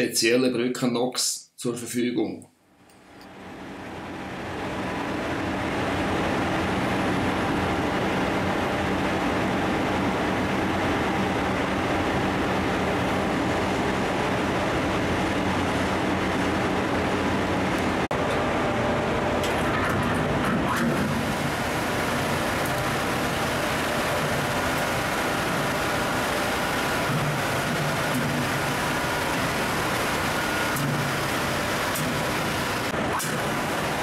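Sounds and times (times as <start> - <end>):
machinery drone with low hum: 3.2 - 34.0.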